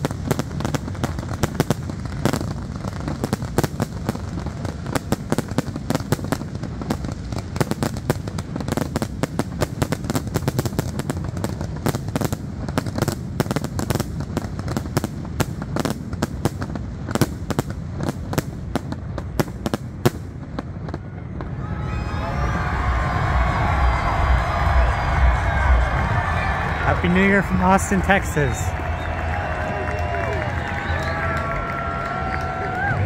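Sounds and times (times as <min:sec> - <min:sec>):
fireworks bangs and crackles: 0:00.0 - 0:33.0
low rumble: 0:22.2 - 0:27.0.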